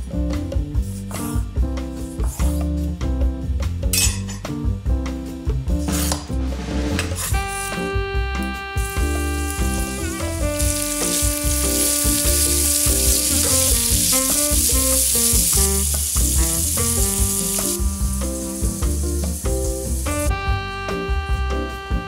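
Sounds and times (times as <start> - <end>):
background music: 0.0 - 22.0
vegetables sizzling in a pan: 8.8 - 20.3.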